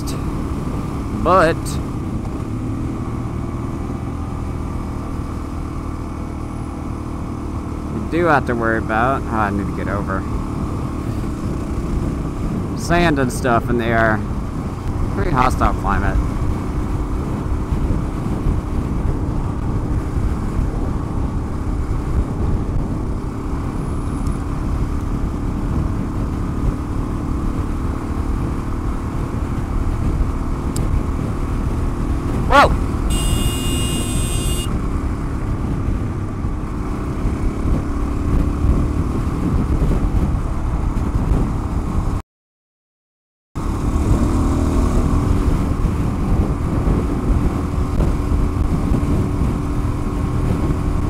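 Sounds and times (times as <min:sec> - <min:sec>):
motorcycle engine cruising: 0:00.0 - 0:42.2, 0:43.6 - 0:51.0
wind rush over helmet: 0:28.3 - 0:42.2, 0:43.6 - 0:51.0
engine blip: 0:33.1 - 0:34.7
high buzzing tone: 0:33.1 - 0:34.7.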